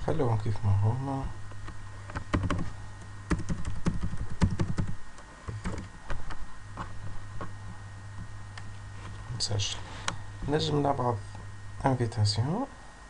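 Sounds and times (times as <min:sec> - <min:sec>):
steady low hum: 0:00.0 - 0:13.0
keyboard keystrokes: 0:02.1 - 0:02.6, 0:03.3 - 0:05.9.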